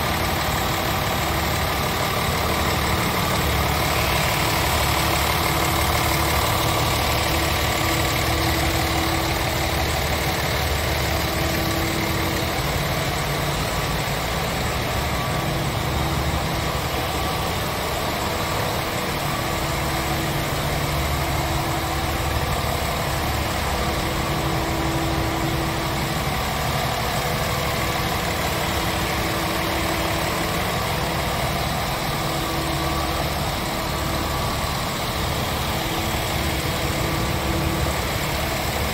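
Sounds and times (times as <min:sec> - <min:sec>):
diesel truck engine idling: 0:00.0 - 0:38.9.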